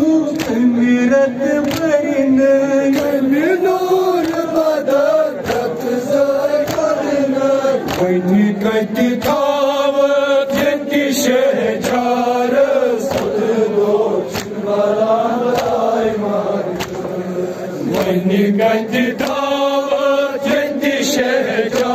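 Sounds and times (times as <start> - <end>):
man chanting lament: 0.0 - 21.9
mourners chanting refrain: 0.0 - 21.9.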